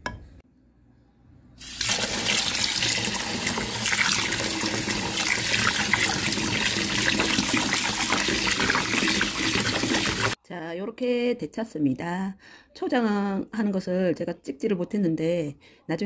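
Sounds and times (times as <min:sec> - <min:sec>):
tap water splashing into a pot: 0:01.8 - 0:10.4.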